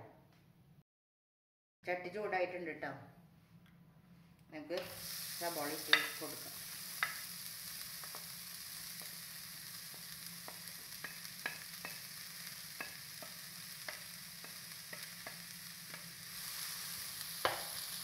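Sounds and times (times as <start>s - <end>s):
onions sizzling in a pan: 4.8s - 18.0s
spoon knocking against pan: 10.5s - 12.0s, 17.4s - 17.7s.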